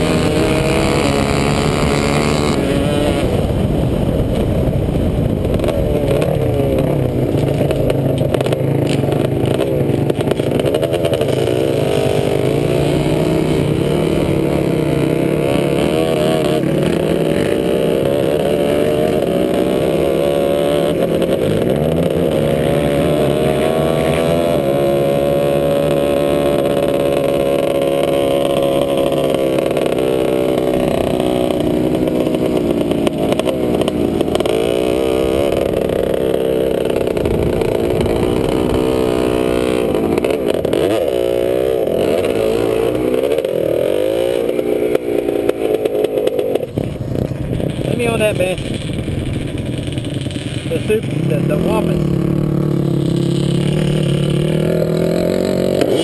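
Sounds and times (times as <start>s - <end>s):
quad engine revving: 0.0s - 56.0s.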